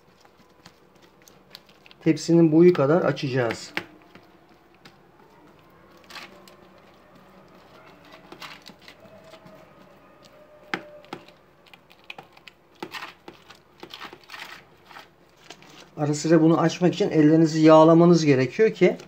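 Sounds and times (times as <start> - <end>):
fingers tapping dough: 0.0 - 14.6
wet dough squelching: 0.0 - 19.0.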